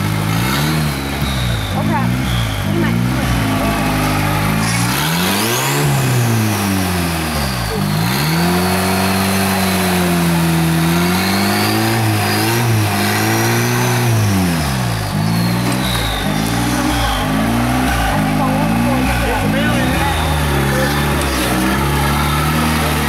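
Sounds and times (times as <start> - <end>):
engine revving under load: 0.0 - 23.0
turbo whistle: 0.4 - 6.8, 7.4 - 23.0.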